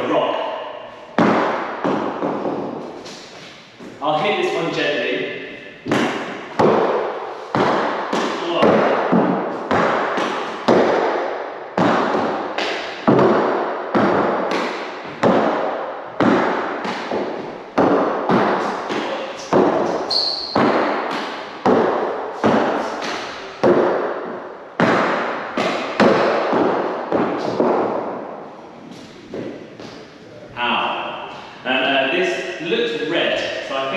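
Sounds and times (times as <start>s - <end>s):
ball smacking off walls: 1.2s - 3.4s, 5.8s - 28.4s.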